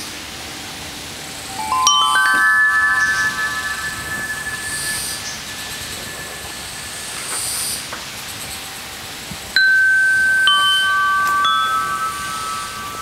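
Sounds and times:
faint high shimmer: 0:01.3 - 0:08.2, 0:09.6 - 0:13.0
metal chimes ringing: 0:01.3 - 0:08.4, 0:09.6 - 0:13.0.

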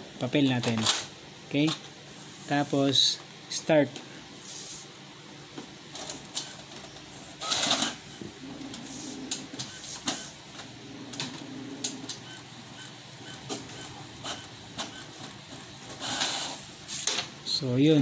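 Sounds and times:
printer motors whirring: 0:04.4 - 0:18.0.

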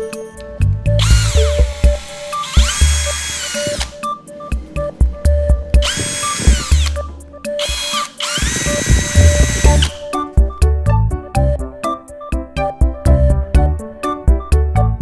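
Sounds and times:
music with steady beat: 0:00.0 - 0:15.0
cordless drill whining: 0:01.0 - 0:04.0, 0:05.8 - 0:10.0.

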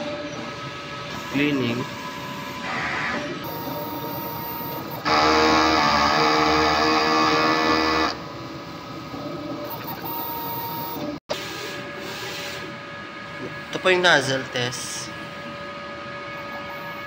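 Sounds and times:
cleaning motors whining: 0:00.0 - 0:11.2
printer mechanical hum: 0:00.0 - 0:14.3.

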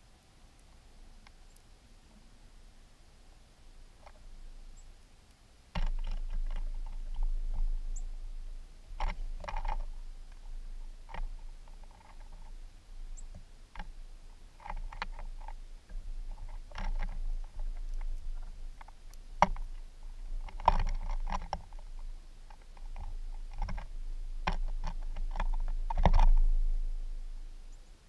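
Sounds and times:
birds pecking on wooden feeder: 0:05.7 - 0:26.7
steady low rumble: 0:15.2 - 0:28.0.

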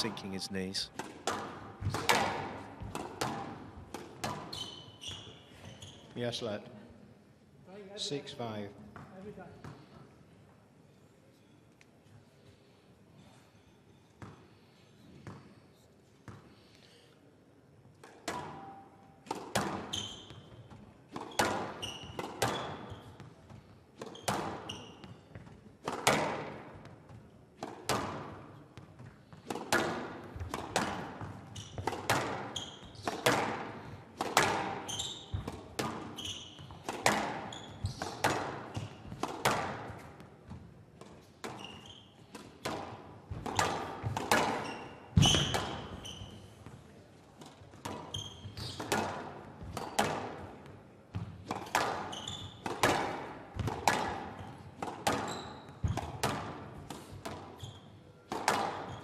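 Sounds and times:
squash ball cracking off rackets: 0:01.0 - 0:04.5, 0:29.4 - 0:40.1, 0:42.3 - 0:44.6, 0:58.3 - 0:58.9
shoes squeaking on court floor: 0:01.8 - 0:06.4, 0:19.5 - 0:25.7, 0:30.3 - 0:33.6, 0:34.3 - 0:42.3, 0:43.3 - 0:59.0.

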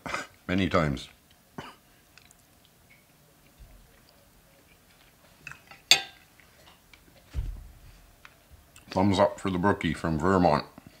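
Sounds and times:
fork clinking and scraping on plate: 0:05.5 - 0:06.2
soft low thump: 0:07.3 - 0:08.0.

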